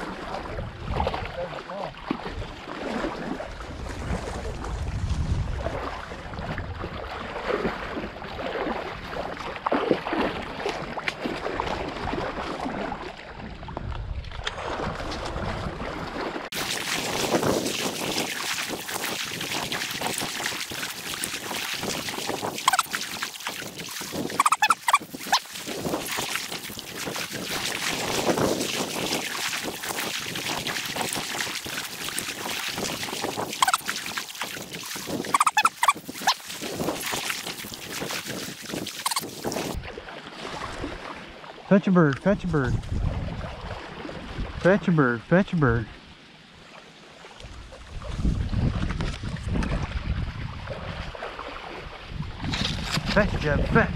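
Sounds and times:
dog splashing through water: 0.0s - 13.3s, 14.4s - 41.2s, 48.0s - 51.9s
duck-like calls: 22.6s - 23.0s, 24.4s - 25.4s, 33.6s - 33.9s, 35.3s - 36.4s, 39.0s - 39.6s.

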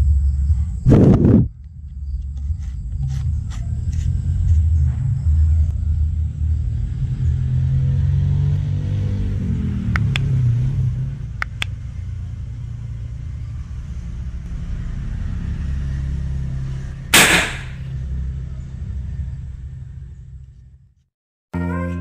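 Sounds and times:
steady low rumble: 0.0s - 2.3s
cannon blast: 17.2s - 17.8s.

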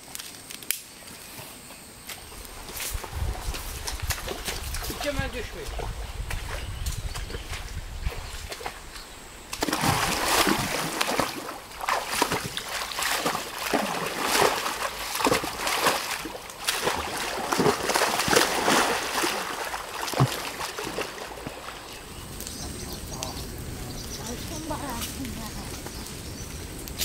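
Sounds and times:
water splashing and sloshing: 2.2s - 27.0s.

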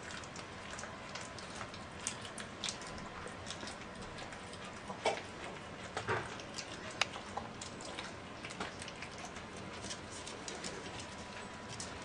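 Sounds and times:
animal chewing clicks: 0.0s - 12.0s.

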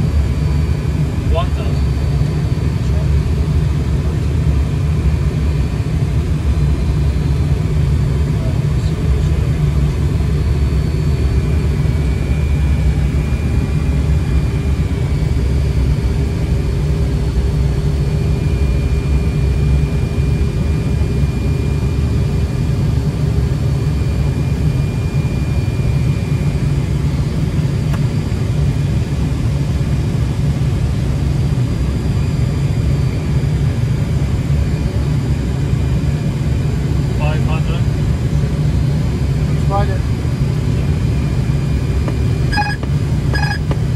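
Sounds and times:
low rumble of airflow and jet engines: 0.0s - 43.9s
faint high whine: 41.6s - 43.8s.

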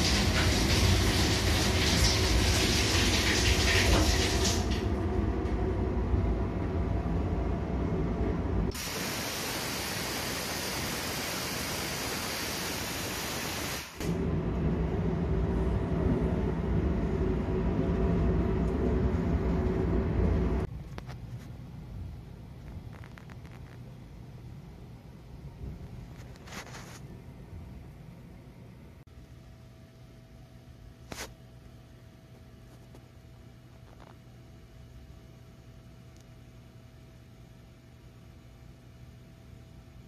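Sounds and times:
train rumble with hum: 0.0s - 8.8s, 14.0s - 29.0s
even hiss: 8.7s - 14.2s.

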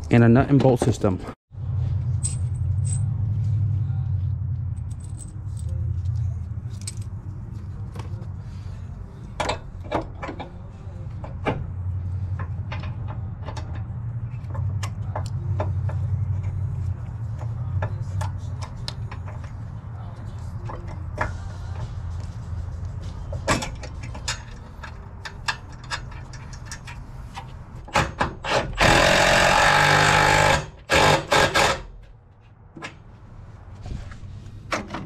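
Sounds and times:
low rumble: 1.5s - 9.8s
metal bolt and washers clinking: 2.2s - 3.2s, 4.8s - 7.3s, 23.4s - 28.2s.

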